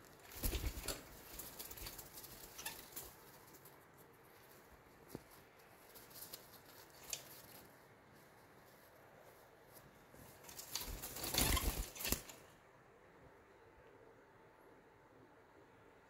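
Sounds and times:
bird wings flapping: 0:00.0 - 0:03.7, 0:10.2 - 0:12.5.

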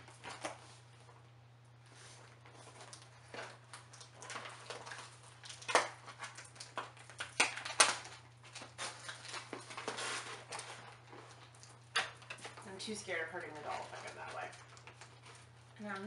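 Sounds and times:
cardboard rustling and scraping: 0:08.5 - 0:11.5.

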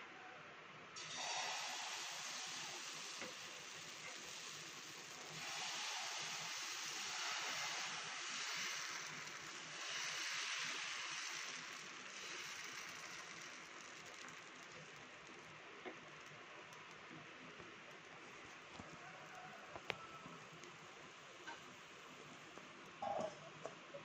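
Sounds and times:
batter sizzling on hot pan: 0:01.0 - 0:17.3.

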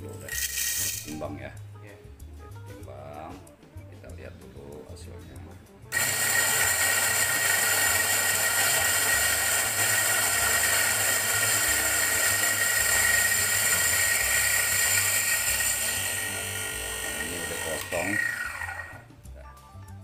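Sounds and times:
coffee grinder whirring: 0:00.0 - 0:01.2, 0:05.9 - 0:19.0.

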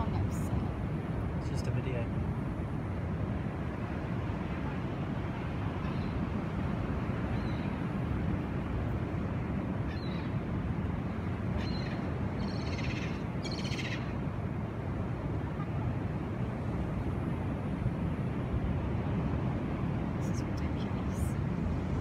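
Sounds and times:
steady low rumble: 0:00.0 - 0:22.0
bird trilled calls: 0:11.6 - 0:14.2.

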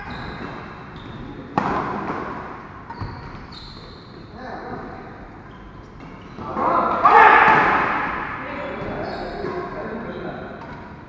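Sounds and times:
racket hitting shuttlecock: 0:01.5 - 0:03.1, 0:06.9 - 0:08.4.

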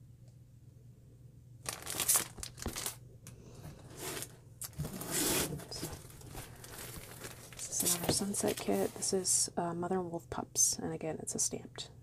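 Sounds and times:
plastic packaging crinkling: 0:01.6 - 0:03.0, 0:03.9 - 0:09.1.

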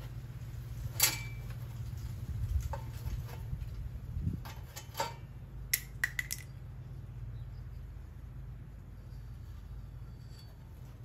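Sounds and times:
steady low hum: 0:00.0 - 0:11.0
clicks and taps on sheet metal: 0:04.4 - 0:06.5.

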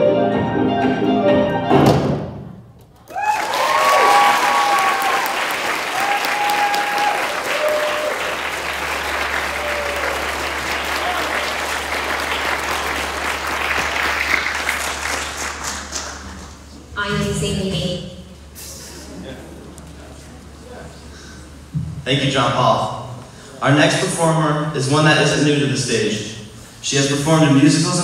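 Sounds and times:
whoops and cheers: 0:03.0 - 0:08.4, 0:09.4 - 0:11.5
audience applause: 0:03.0 - 0:16.9.

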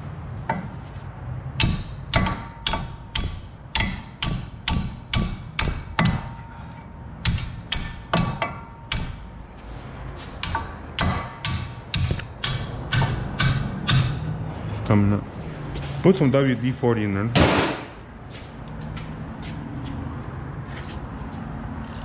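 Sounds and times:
hammer striking metal: 0:01.6 - 0:06.6, 0:07.2 - 0:09.4, 0:10.4 - 0:14.3, 0:17.4 - 0:18.0.

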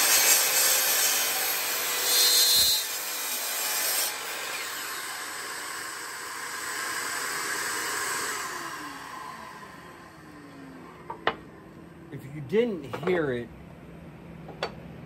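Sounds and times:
miter saw cutting wood: 0:00.0 - 0:11.9
saw blade spinning down: 0:04.1 - 0:11.7.

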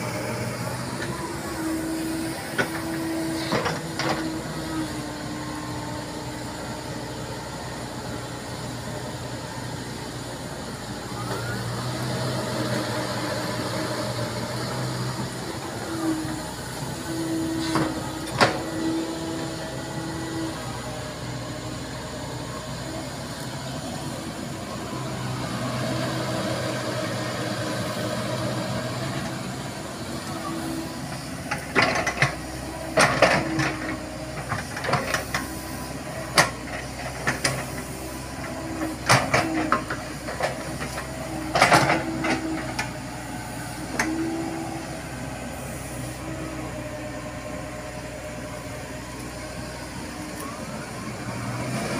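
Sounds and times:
excavator engine running: 0:00.0 - 0:51.9.

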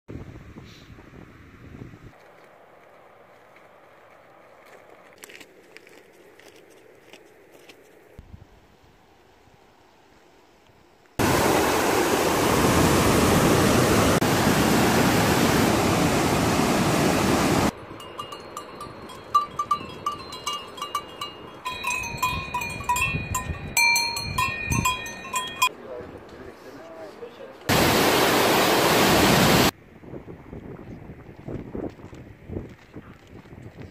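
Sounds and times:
stream rushing over rocks: 0:11.2 - 0:17.7, 0:27.7 - 0:29.7
cow bell clanking: 0:17.7 - 0:25.7.

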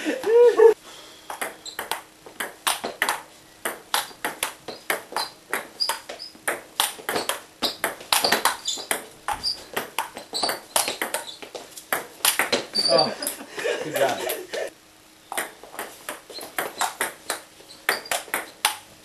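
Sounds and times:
table tennis ball hits: 0:01.3 - 0:12.9, 0:15.3 - 0:18.8.

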